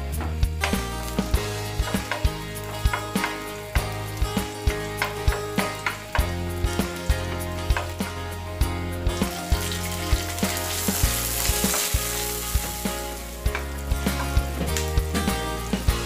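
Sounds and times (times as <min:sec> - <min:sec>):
onions sizzling in hot oil: 0:00.4 - 0:16.0
wooden spatula knocking pan: 0:01.8 - 0:04.0, 0:04.9 - 0:06.4.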